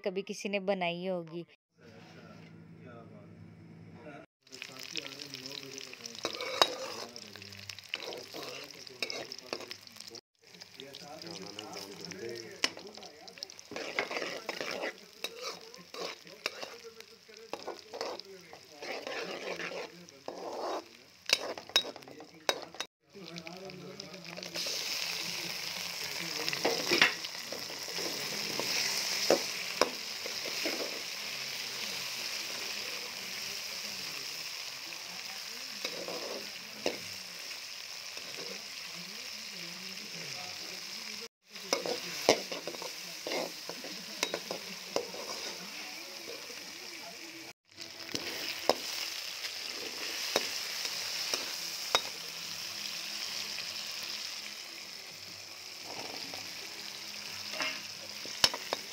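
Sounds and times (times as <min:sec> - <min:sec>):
food sizzling in hot oil: 0:04.4 - 0:58.9
skimmer clinking against a pan: 0:21.3 - 0:22.9, 0:44.2 - 0:45.5.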